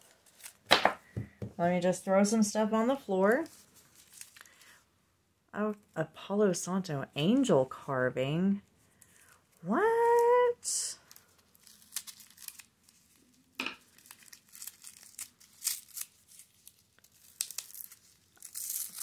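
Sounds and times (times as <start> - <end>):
tissue paper crinkling and tearing: 3.4 - 4.7, 11.0 - 19.0.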